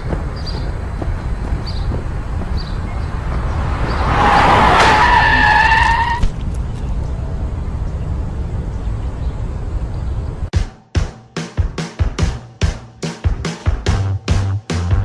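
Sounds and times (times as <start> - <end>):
car tyres screeching: 0.1 - 6.7.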